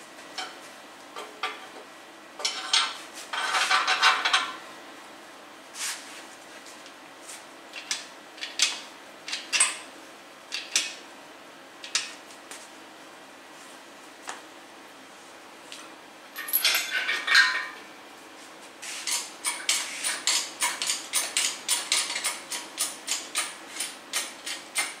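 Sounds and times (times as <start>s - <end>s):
metal tools clanking on engine block: 2.4s - 4.6s, 16.4s - 17.8s.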